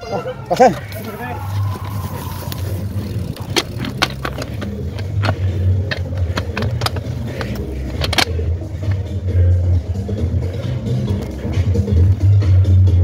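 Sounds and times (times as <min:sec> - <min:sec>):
bike rolling over rough trail: 0:00.5 - 0:09.1
bike rattling clicks and knocks: 0:00.5 - 0:09.2.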